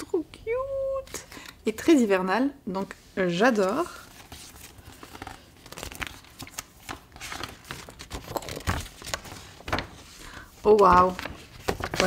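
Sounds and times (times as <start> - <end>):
paper rustling and crackling: 3.6 - 12.0.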